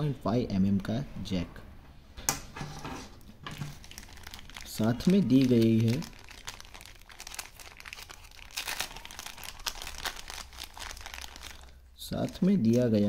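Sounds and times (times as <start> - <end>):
plastic bag crinkling: 3.4 - 13.0.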